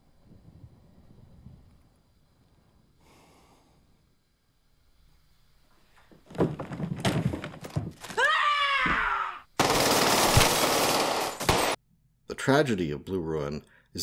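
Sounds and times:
thuds and scuffling: 0:05.9 - 0:08.2
woman screaming: 0:08.0 - 0:09.5
gunfire burst: 0:09.6 - 0:11.8.

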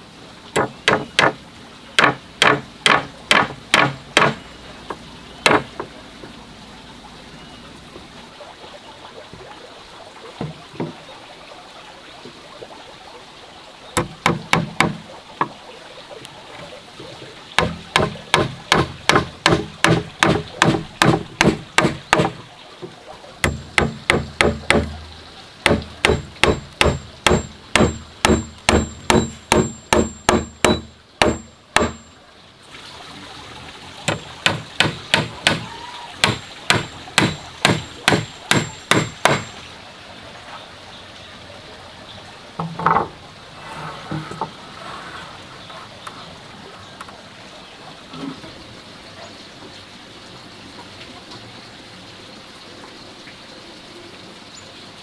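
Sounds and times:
hammer striking nails into wood: 0:00.6 - 0:01.4, 0:02.0 - 0:04.4, 0:05.5 - 0:05.9, 0:14.0 - 0:15.0, 0:17.6 - 0:22.4, 0:23.4 - 0:24.9, 0:25.7 - 0:32.1, 0:34.1 - 0:39.5.

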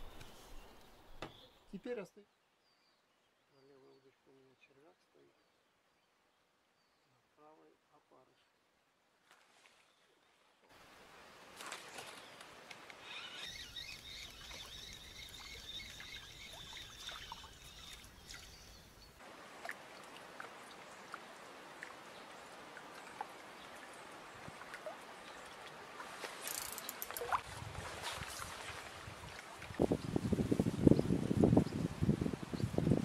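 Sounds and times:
water lapping: 0:11.5 - 0:29.8
high bird-like chirping: 0:13.0 - 0:19.2
wind buffeting microphone: 0:27.4 - 0:33.0.

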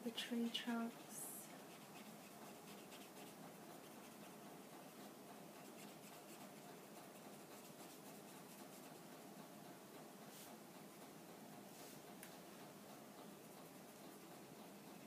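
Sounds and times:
brush bristles scratching on paper: 0:01.0 - 0:04.4, 0:05.6 - 0:09.0.

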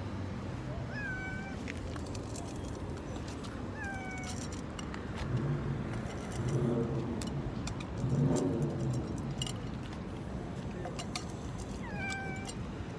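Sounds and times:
cats meowing: 0:00.7 - 0:01.7, 0:03.7 - 0:04.4, 0:11.8 - 0:12.6.

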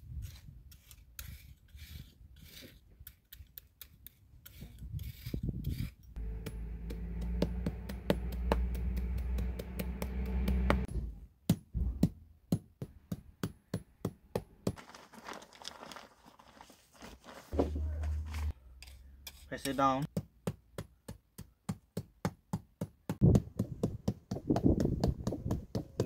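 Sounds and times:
hammer tapping tarmac: 0:06.2 - 0:10.9
low mechanical hum: 0:06.2 - 0:11.0.

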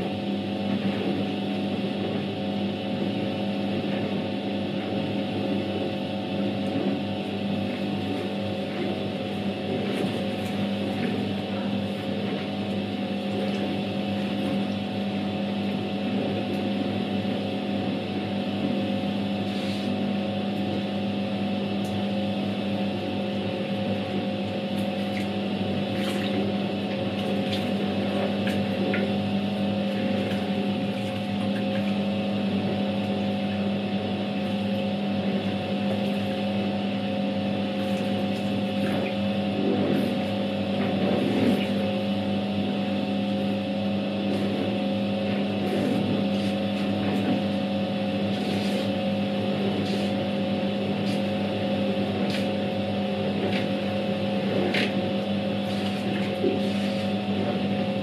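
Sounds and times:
washing machine motor hum: 0:00.0 - 0:58.0
water and clothes swishing: 0:24.8 - 0:29.2, 0:29.8 - 0:32.1, 0:37.7 - 0:41.8, 0:45.5 - 0:58.0.

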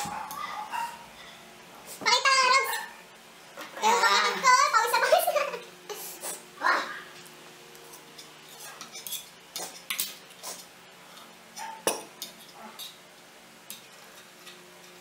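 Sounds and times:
forks clinking on plates: 0:08.1 - 0:10.3.

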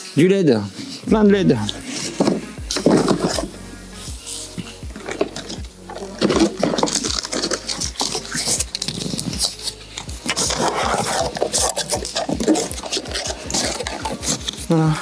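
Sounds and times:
plastic crackling and scraping: 0:00.7 - 0:15.0
puppy chewing plastic strap: 0:05.0 - 0:14.7.

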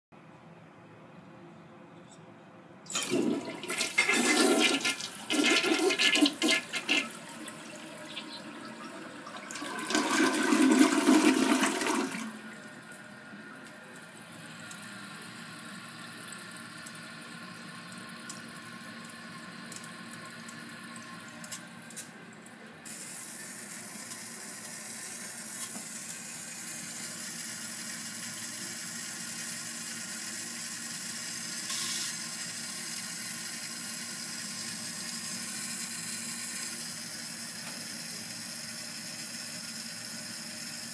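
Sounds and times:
toilet tank refilling hiss: 0:02.9 - 0:12.5, 0:22.8 - 0:40.9
toilet flushing: 0:02.9 - 0:13.1, 0:22.8 - 0:40.9.

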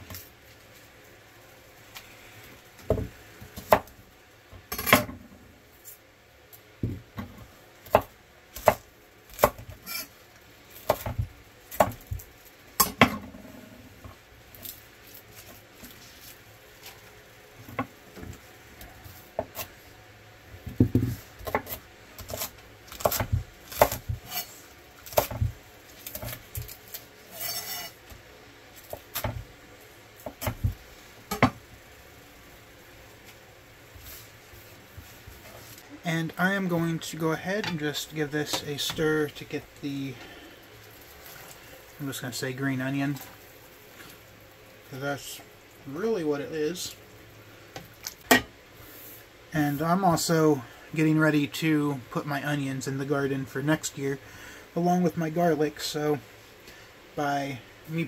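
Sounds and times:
knife chopping on wooden board: 0:10.9 - 0:12.2, 0:20.8 - 0:24.4.

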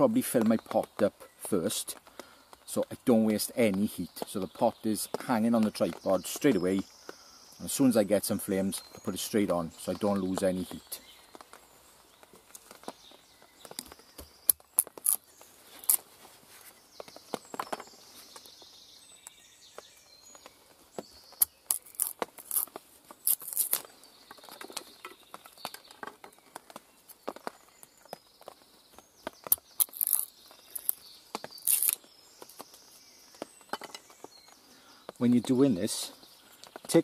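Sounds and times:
knife splitting wood cracks: 0:13.6 - 0:16.1, 0:21.3 - 0:26.4, 0:29.2 - 0:32.6.

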